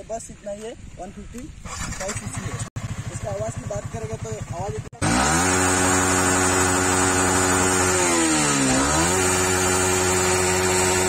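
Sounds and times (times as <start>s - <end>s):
motorcycle engine idling: 1.7s - 5.2s.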